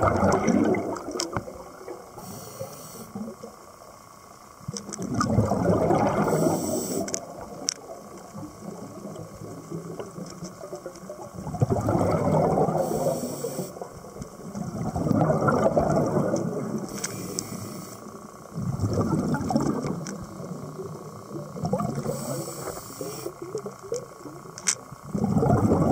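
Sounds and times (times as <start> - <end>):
exhaled air bubbles underwater: 0.0 - 2.3, 4.6 - 17.0, 18.1 - 25.9
regulator hiss: 2.0 - 4.7, 6.0 - 10.7, 12.6 - 14.6, 16.6 - 18.6, 19.9 - 25.1.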